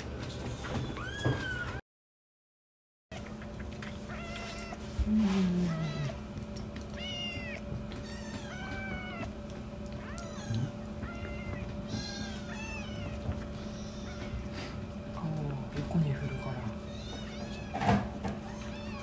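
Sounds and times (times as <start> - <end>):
kitten mewing: 4.1 - 6.3, 6.9 - 14.8.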